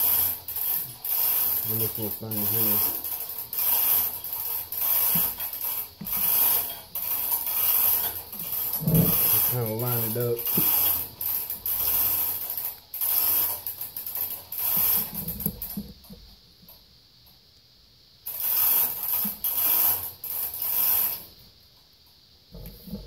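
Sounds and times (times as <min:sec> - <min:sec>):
reamer rasping metal: 0:00.0 - 0:15.4.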